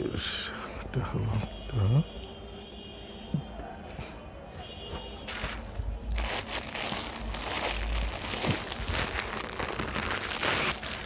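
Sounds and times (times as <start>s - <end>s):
plastic packaging crinkling: 5.2s - 11.0s.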